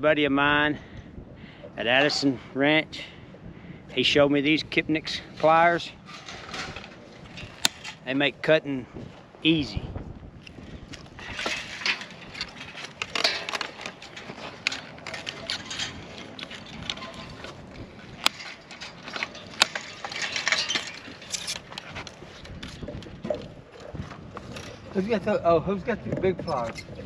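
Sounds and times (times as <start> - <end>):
loose wire jangling and scraping: 5.0 - 8.1, 10.4 - 27.0.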